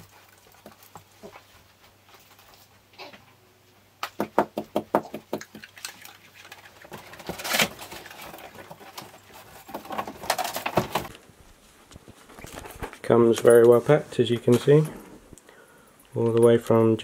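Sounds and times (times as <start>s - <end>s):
cardboard scraping and rustling: 6.9s - 11.2s.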